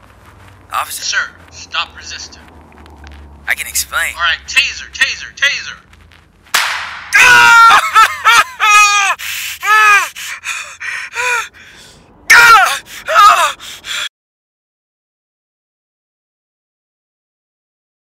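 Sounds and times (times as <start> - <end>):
person screaming and wailing: 7.1 - 11.7, 12.3 - 14.1.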